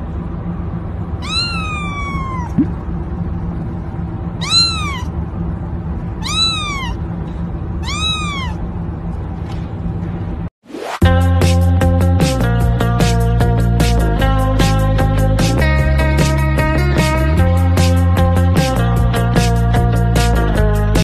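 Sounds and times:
steady low hum: 0.0 - 10.5
kitten meowing: 1.2 - 2.7, 4.4 - 5.2, 6.2 - 7.0, 7.8 - 8.6.

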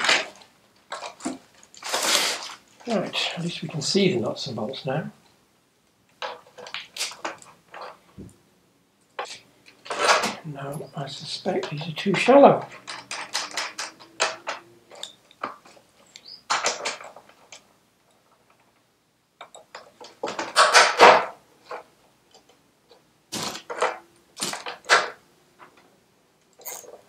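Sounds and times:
metal sockets clinking: 12.7 - 15.5, 26.6 - 27.0.

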